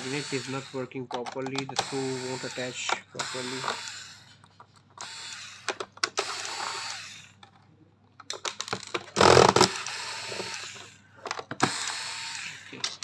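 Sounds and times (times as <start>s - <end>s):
electric screwdriver motor whirring: 0.0s - 0.9s, 1.7s - 4.3s, 5.0s - 7.4s, 9.2s - 11.0s, 11.6s - 12.8s
screwdriver bit clicking on plastic: 0.0s - 4.1s, 8.3s - 13.0s.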